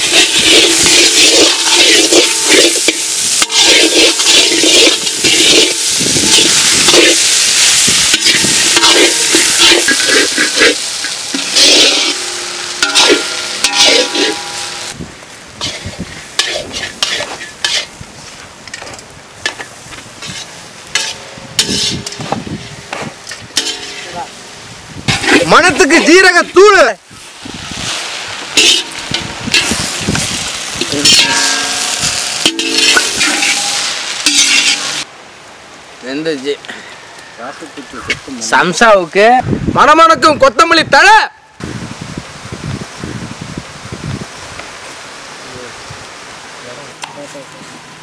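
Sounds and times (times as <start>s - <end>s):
metal spoon scraping pan: 0.0s - 15.0s, 15.6s - 17.9s, 19.4s - 24.4s, 25.1s - 25.8s, 28.5s - 35.1s
food sizzling in oil: 0.0s - 35.1s.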